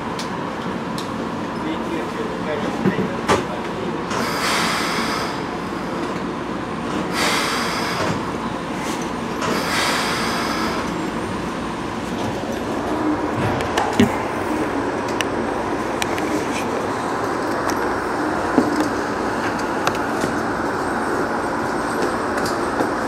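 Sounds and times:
electric train rumble: 0.0 - 23.0
short air hisses: 4.2 - 5.4, 7.1 - 8.2, 9.5 - 10.9.

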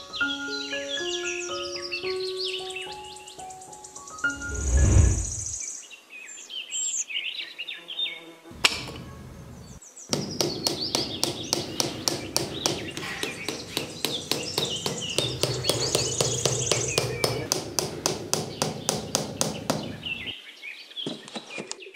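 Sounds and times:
birds chirping: 0.0 - 7.0, 8.5 - 21.9
low whoosh: 4.3 - 5.6
rapid tapping of sticks into sand: 8.6 - 20.3.

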